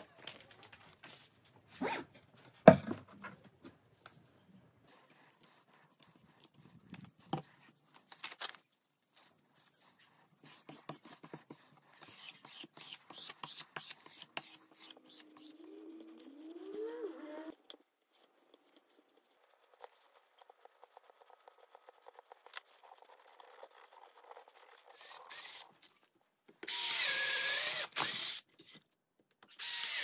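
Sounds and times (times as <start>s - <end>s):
wooden board knocking on workbench: 2.6s - 3.0s.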